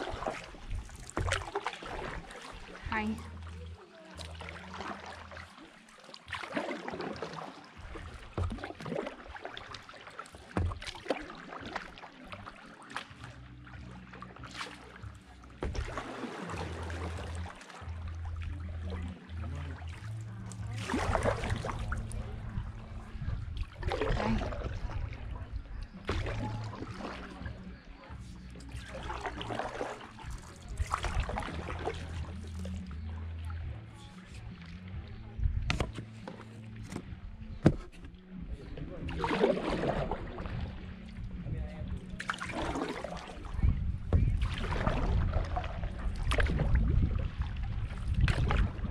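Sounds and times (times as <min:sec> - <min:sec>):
water trickling off paddle: 0:00.0 - 0:41.4, 0:42.1 - 0:48.9
paddle strokes in water: 0:00.0 - 0:48.9
water splashes: 0:00.0 - 0:48.9
low rumble: 0:13.2 - 0:48.9.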